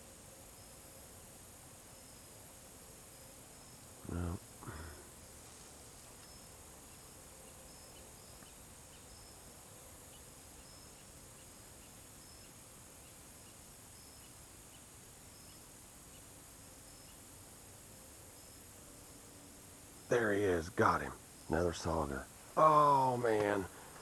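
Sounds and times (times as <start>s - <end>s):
insects chirping: 0.0s - 24.0s
steady high hiss: 0.0s - 24.0s.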